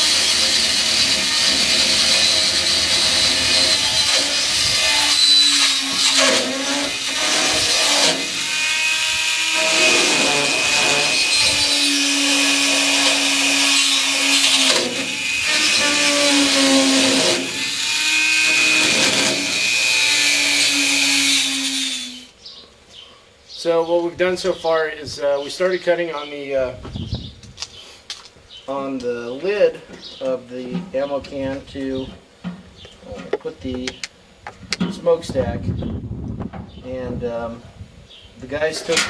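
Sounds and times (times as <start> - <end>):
rotary tool grinding metal: 0.0 - 22.3.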